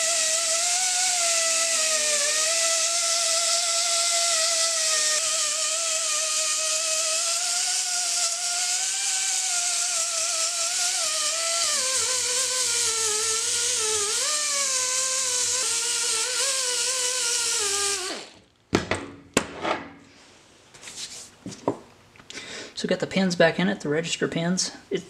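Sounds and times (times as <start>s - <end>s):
die grinder whining on metal: 0.0s - 18.4s.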